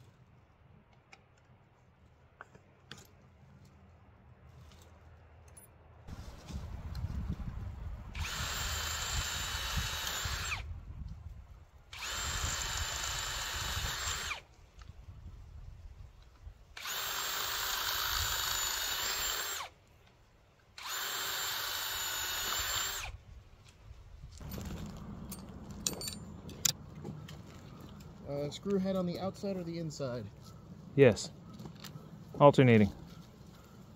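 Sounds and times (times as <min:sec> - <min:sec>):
cordless drill drilling into wood: 0:08.1 - 0:10.7, 0:11.9 - 0:14.5, 0:16.8 - 0:19.7, 0:20.8 - 0:23.2.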